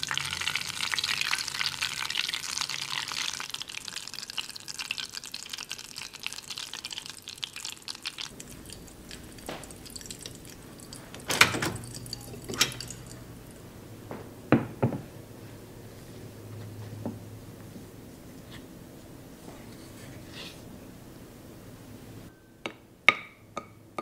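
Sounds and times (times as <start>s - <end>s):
butter crackling in a saucepan: 0.0s - 13.6s.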